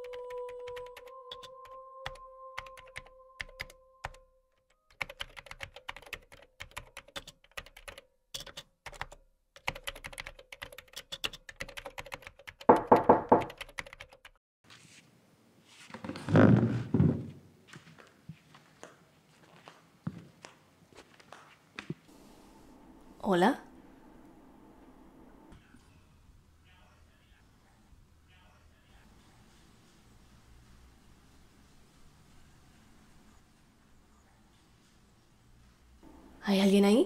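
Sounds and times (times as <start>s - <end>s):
laptop keyboard typing: 0.0s - 4.2s, 4.9s - 14.4s.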